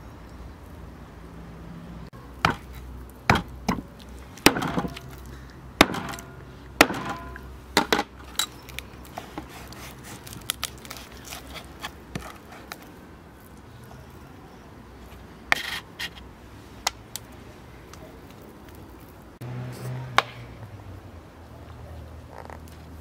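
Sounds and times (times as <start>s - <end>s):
knife scraping through fish: 9.2s - 12.7s.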